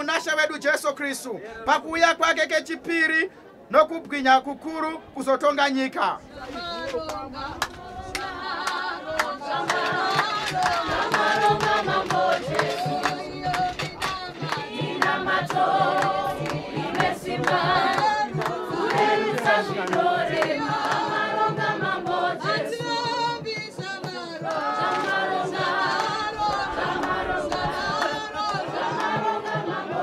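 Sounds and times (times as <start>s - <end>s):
congregation singing a hymn: 6.2s - 30.0s.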